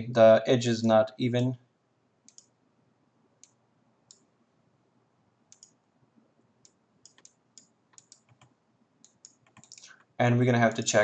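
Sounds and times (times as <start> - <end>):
computer mouse clicks: 2.3 - 2.6, 3.4 - 4.3, 5.5 - 5.8, 6.6 - 10.1.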